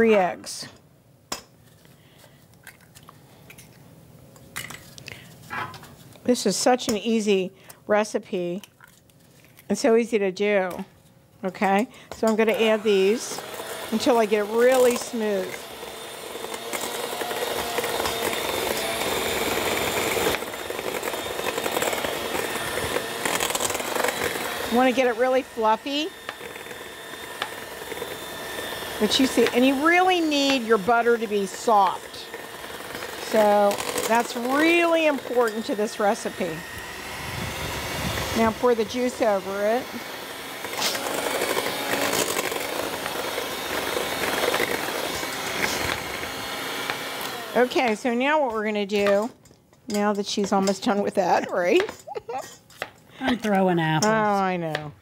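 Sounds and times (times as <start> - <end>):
electric hand mixer running: 12.2 - 49.2.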